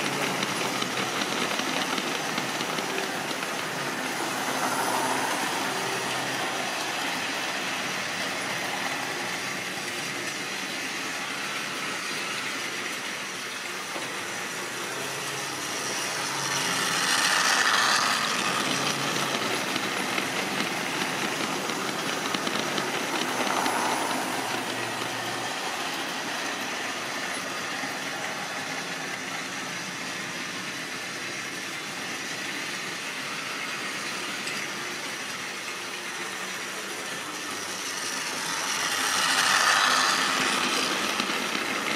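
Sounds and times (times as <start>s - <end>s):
model train running on track: 0.0s - 41.9s.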